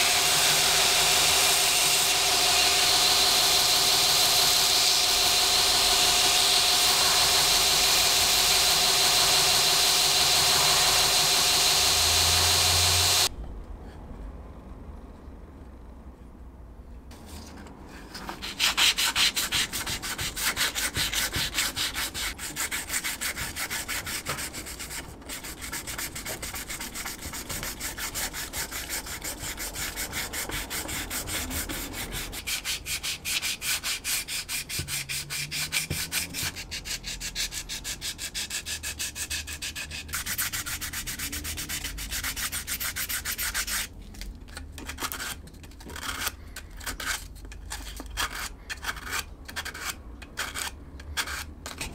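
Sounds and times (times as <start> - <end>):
sandpaper rubbing on plastic: 18.2 - 43.9.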